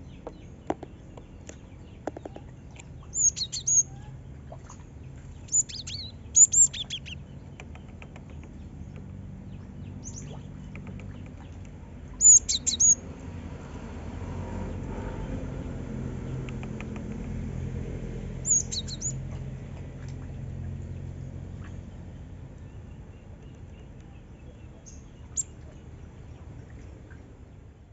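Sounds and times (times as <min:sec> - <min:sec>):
low background rumble: 0:00.0 - 0:27.9
bird chirping high: 0:03.0 - 0:04.1, 0:05.5 - 0:07.2, 0:12.2 - 0:13.0, 0:18.4 - 0:19.2.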